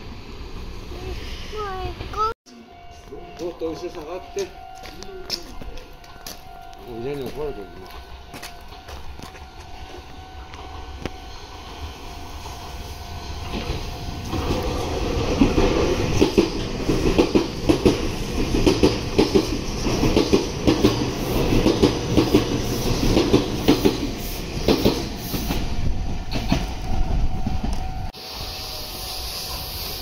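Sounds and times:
train rumble: 0:00.0 - 0:30.0
train wheels clacking over rail joints: 0:15.3 - 0:26.8.

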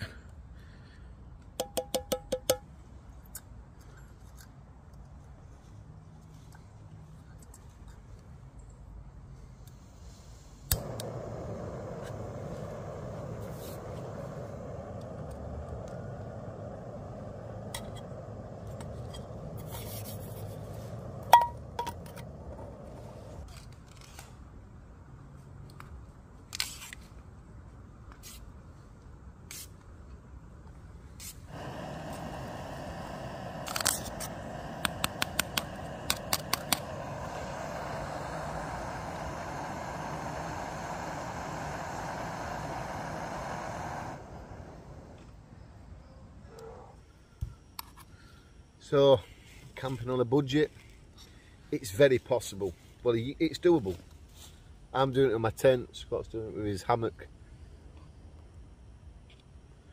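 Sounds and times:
gas stove burner hissing: 0:10.1 - 0:23.5, 0:31.2 - 0:45.8
piezo igniter clicking: 0:10.7 - 0:19.4, 0:31.6 - 0:44.4.

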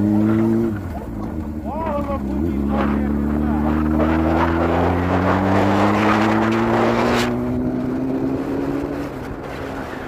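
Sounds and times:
motorcycle engine running: 0:00.0 - 0:06.3
wind rushing over microphone: 0:02.7 - 0:10.0.

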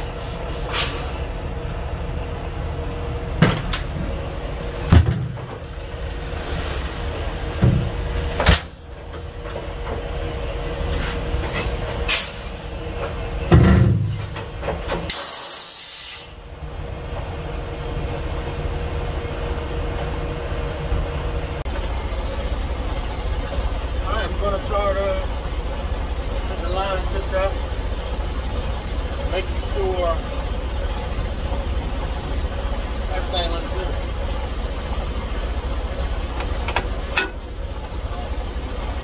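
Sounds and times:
truck engine idling: 0:00.0 - 0:39.0
clunks and knocks: 0:03.3 - 0:04.2, 0:04.8 - 0:05.8, 0:07.5 - 0:10.2, 0:10.9 - 0:15.1, 0:36.3 - 0:37.5
air hissing: 0:10.9 - 0:12.6, 0:15.1 - 0:16.4.

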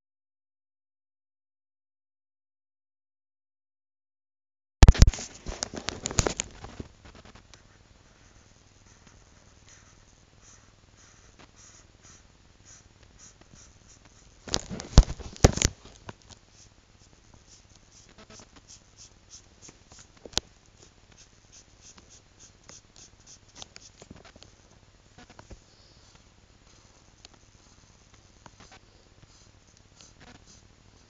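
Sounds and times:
marker scratching on paper: 0:07.1 - 0:15.6, 0:16.5 - 0:20.2, 0:20.8 - 0:24.4, 0:26.0 - 0:31.0
knocks and rustling: 0:14.4 - 0:16.2.

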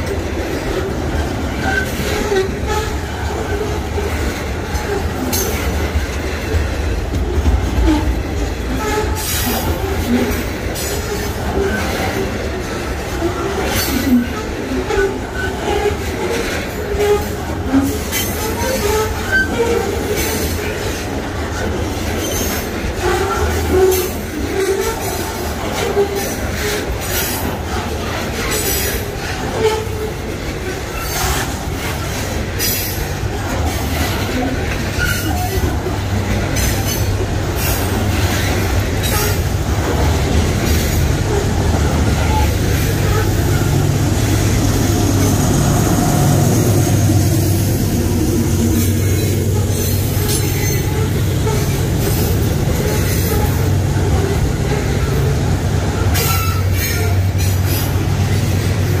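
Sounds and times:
diesel locomotive humming: 0:00.0 - 0:59.0
train wheels rumbling on rail: 0:00.0 - 0:59.0.

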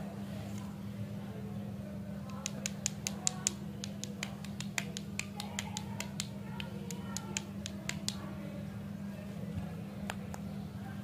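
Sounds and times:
steady low hum: 0:00.0 - 0:11.0
fingers tapping plastic sticks: 0:02.3 - 0:08.2.

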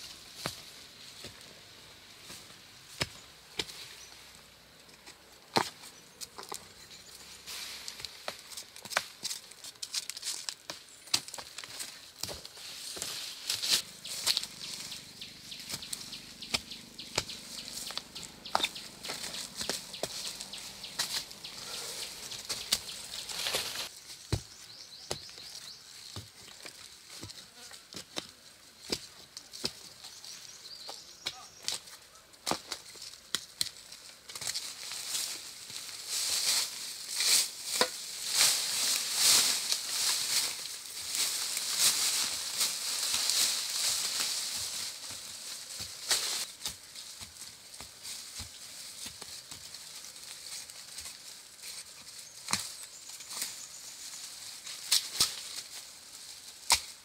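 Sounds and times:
dry leaves rustling and crackling: 0:06.4 - 0:27.2, 0:32.5 - 0:57.0.

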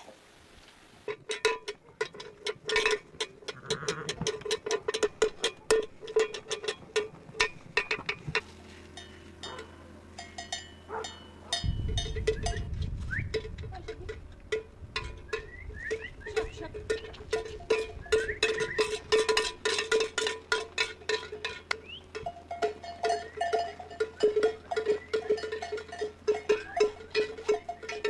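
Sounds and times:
sheep bells clinking: 0:01.1 - 0:28.0
low rumble: 0:11.6 - 0:19.4.

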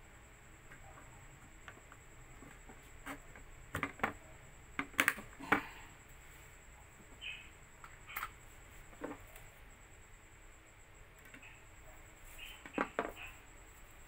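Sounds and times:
plastic clicks and knocks: 0:01.6 - 0:04.2, 0:04.8 - 0:05.6.

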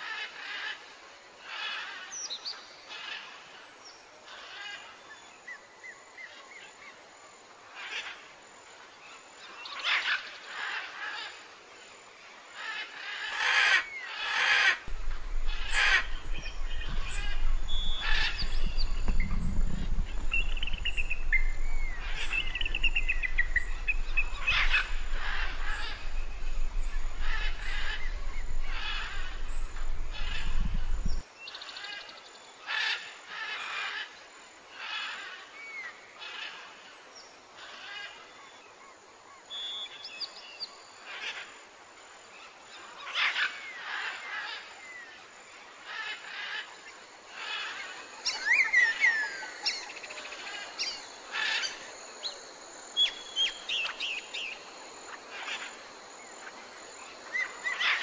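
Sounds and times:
birds chirping and trilling: 0:09.4 - 0:11.5, 0:12.5 - 0:34.2, 0:42.4 - 0:58.0
steady low rumble: 0:14.9 - 0:31.2.

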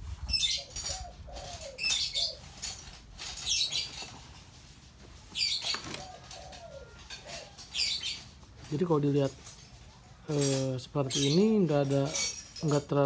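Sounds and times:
small birds chirping: 0:00.2 - 0:12.8
dove cooing: 0:00.3 - 0:04.3, 0:05.2 - 0:08.3.

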